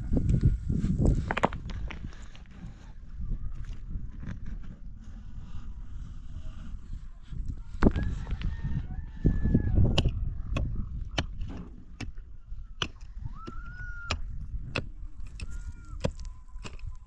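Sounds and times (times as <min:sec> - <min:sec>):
hands scraping soil and stones: 0:00.2 - 0:08.5, 0:14.1 - 0:17.0.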